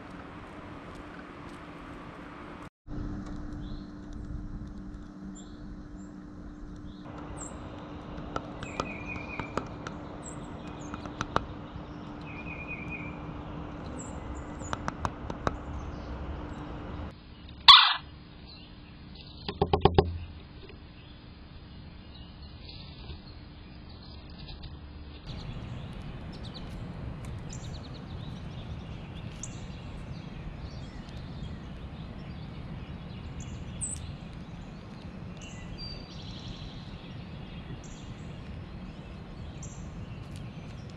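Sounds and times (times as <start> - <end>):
low steady hum: 0.0 - 40.9
bird chirps: 5.3 - 7.7, 8.4 - 13.2, 13.8 - 21.2, 27.4 - 40.9
woodpecker tapping: 7.1 - 16.7, 19.5 - 20.7.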